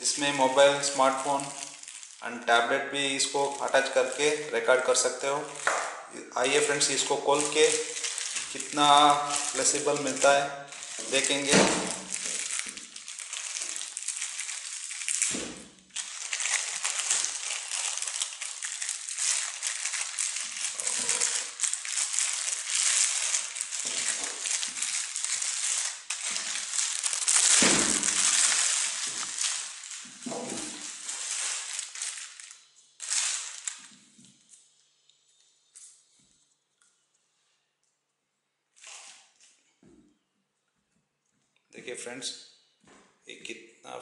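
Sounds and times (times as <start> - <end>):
plastic bag crinkling: 0.0 - 34.1.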